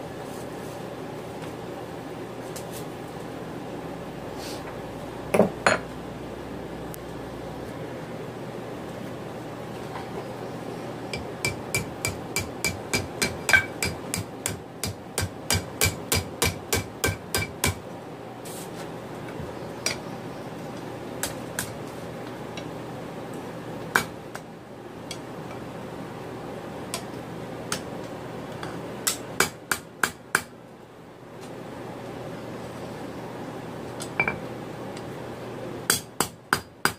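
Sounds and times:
hammer ringing on hot steel: 11.1 - 17.8.

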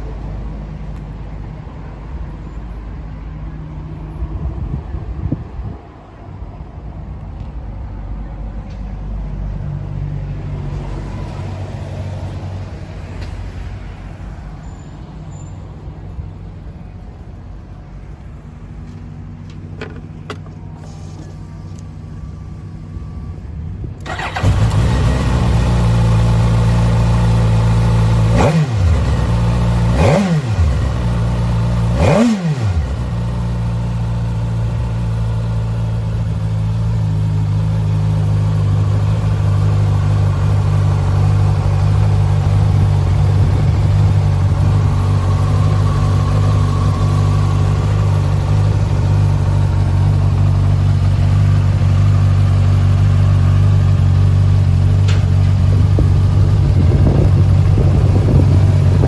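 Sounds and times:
engine revving: 24.0 - 33.8
motorcycle engine starting: 24.0 - 59.0
motorcycle engine idling: 32.8 - 59.0.

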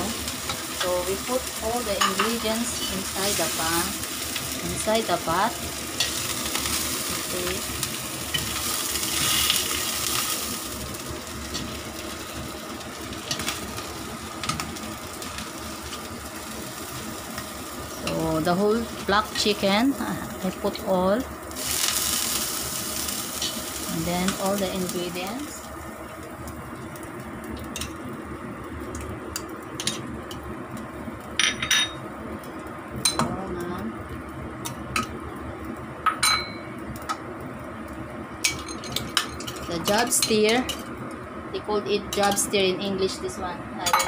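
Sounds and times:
stove rumble: 0.0 - 44.0
metal tongs clicking on pot: 2.0 - 2.4, 28.9 - 30.4, 38.4 - 40.9.

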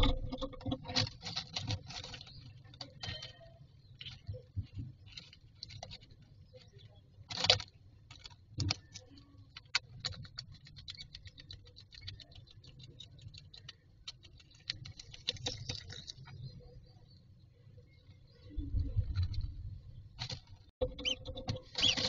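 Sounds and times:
bird scratching in nest material: 20.2 - 22.0.

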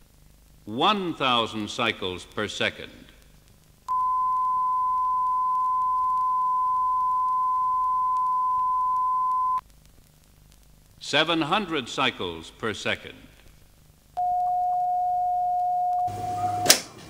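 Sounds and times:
tape hiss: 0.0 - 17.0
low hum: 3.9 - 9.6
steady test tone: 3.9 - 9.6.

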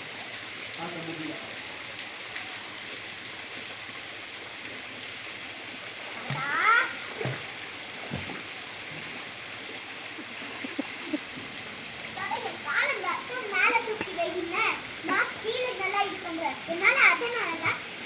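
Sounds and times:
water rushing: 0.0 - 18.0
people swimming splashing: 6.0 - 9.3, 9.9 - 11.5.

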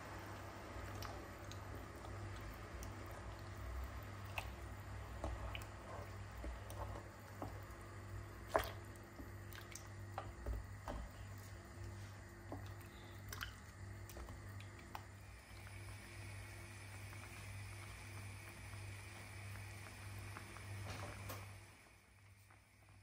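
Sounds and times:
low steady hum: 0.0 - 23.0
wet squishing of stirring: 0.7 - 15.7.

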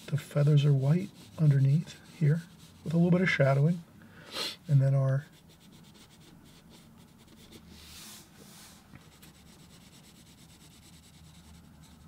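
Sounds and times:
pencil shading on paper: 0.0 - 3.3, 5.3 - 8.2, 9.0 - 12.0.

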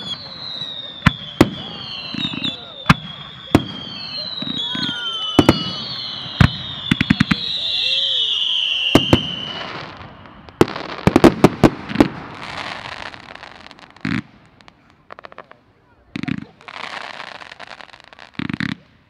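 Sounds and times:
firework whistles falling in pitch: 0.0 - 11.0
firework crackling: 0.0 - 19.0.

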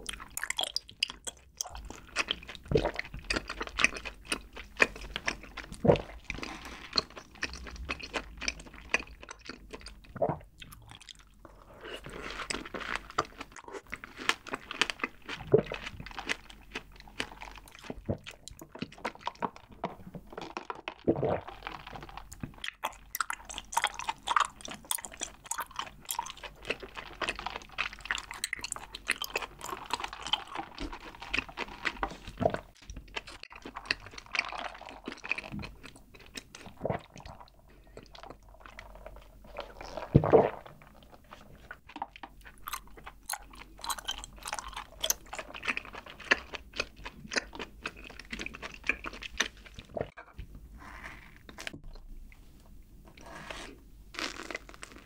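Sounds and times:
chewing with wet mouth clicks: 0.0 - 11.4, 20.6 - 40.0, 41.6 - 50.4
slurp through drinking straw: 50.8 - 51.8, 53.2 - 55.0.

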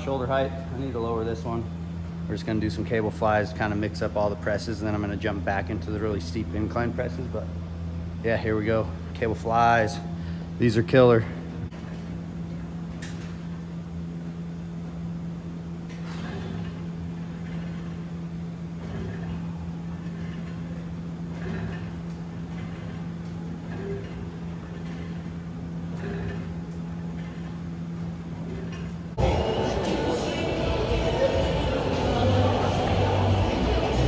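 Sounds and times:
steady low hum: 0.0 - 34.0
cables swishing over pulleys: 8.4 - 34.0.

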